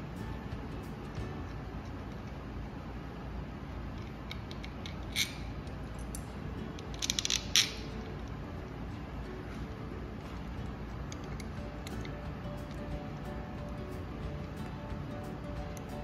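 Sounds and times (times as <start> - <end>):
metal bracket and screw clicking: 4.0 - 8.4.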